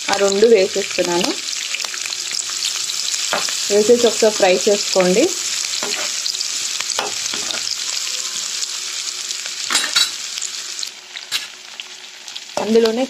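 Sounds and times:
vegetables sizzling in oil: 0.0s - 13.0s
spatula scraping pan: 5.4s - 7.8s.

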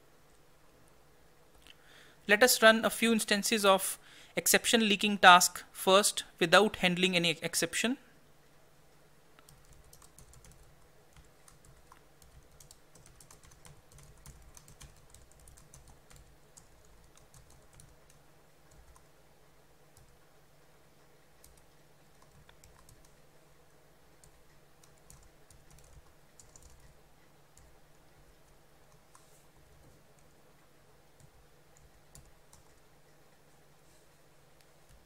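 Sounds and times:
low steady hum: 0.0s - 35.0s
keyboard typing clicks: 9.4s - 19.1s, 21.4s - 23.2s, 24.2s - 27.7s.

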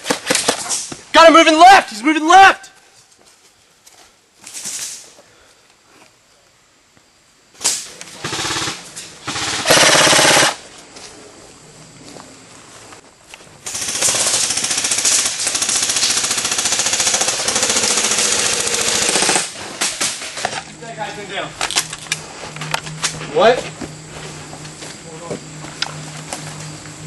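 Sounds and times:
airsoft rifle firing bursts: 8.2s - 10.6s, 13.7s - 19.6s.

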